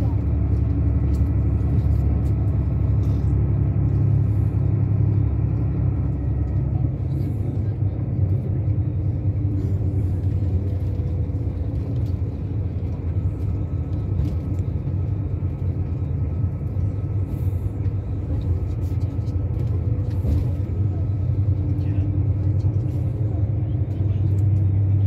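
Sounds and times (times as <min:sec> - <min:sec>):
vehicle engine and road rumble: 0:00.0 - 0:25.0.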